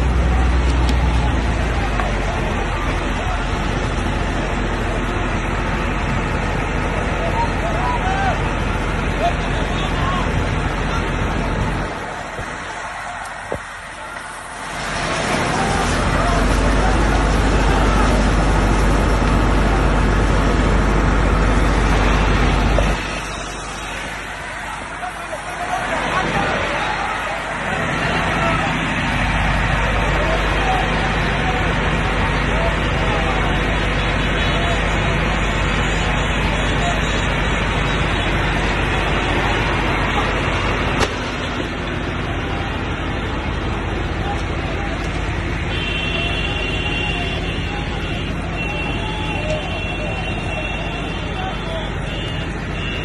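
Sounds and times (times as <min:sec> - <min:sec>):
roar of building fire: 0:00.0 - 0:53.0
sharp crack: 0:40.8 - 0:41.8.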